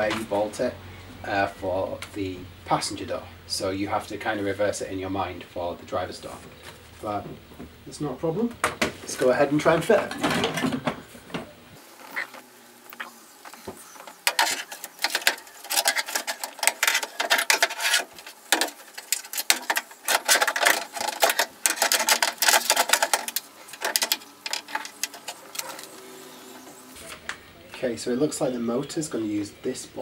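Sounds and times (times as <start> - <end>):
metal frame rattling against door: 9.7 - 11.0.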